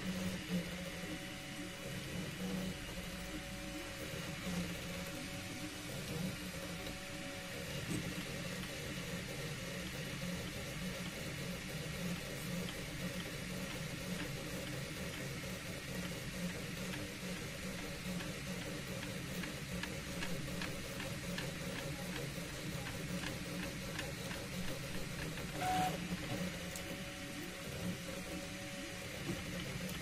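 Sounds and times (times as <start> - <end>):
printer fans and motors humming: 0.0 - 30.0
stepper motor ticks: 7.8 - 30.0.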